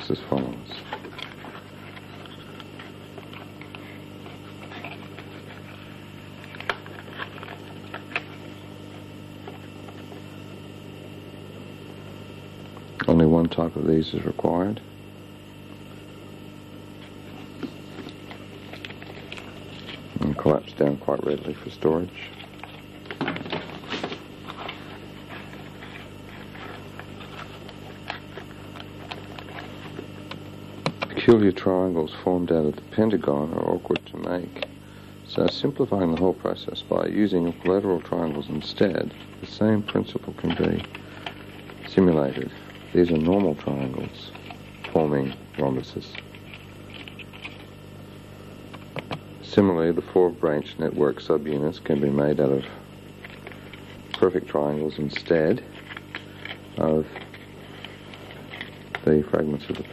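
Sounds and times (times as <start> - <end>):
electrical hum: 0.0 - 59.9
shiny sheets crinkling and clicking: 0.2 - 10.4, 17.0 - 31.5, 33.1 - 49.2, 53.0 - 59.9.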